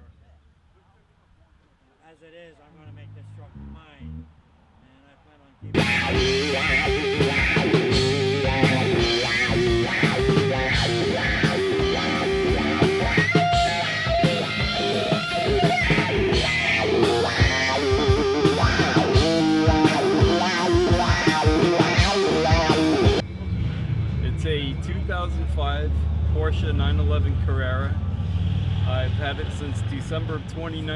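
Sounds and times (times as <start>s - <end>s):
electric guitar riffs: 2.9s - 4.3s, 5.6s - 23.2s
drums: 5.7s - 23.8s.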